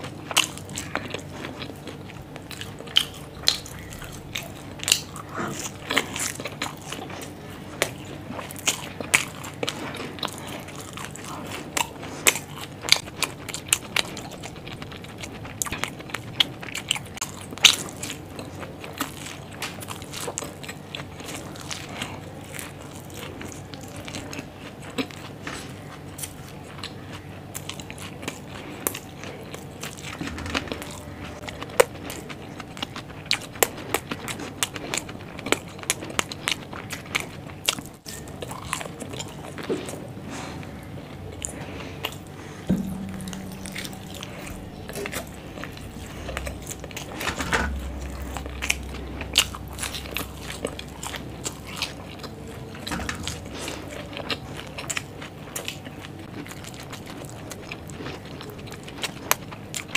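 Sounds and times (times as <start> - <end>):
person chewing crunchy food: 0.0 - 59.9.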